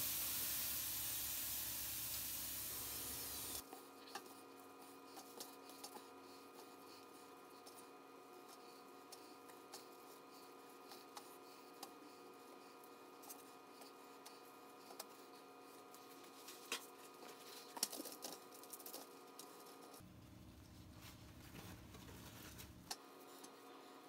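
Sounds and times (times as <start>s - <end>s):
paper towel crinkling: 20.7s - 22.8s.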